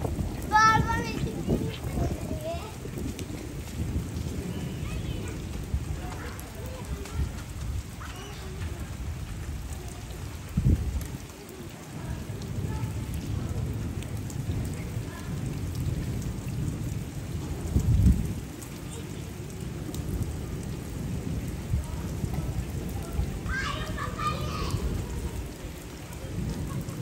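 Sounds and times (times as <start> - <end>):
low rumbles: 0.0 - 11.1
heavy rain on pavement: 0.0 - 27.0.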